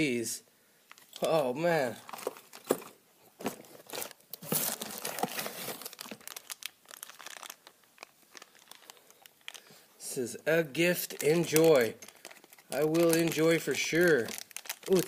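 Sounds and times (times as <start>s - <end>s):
plastic packaging crinkling: 0.9s - 9.9s, 10.9s - 15.0s.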